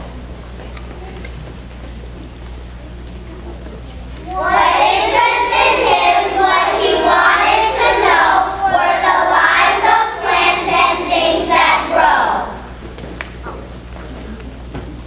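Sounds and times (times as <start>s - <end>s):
children speaking in unison: 4.2s - 12.8s.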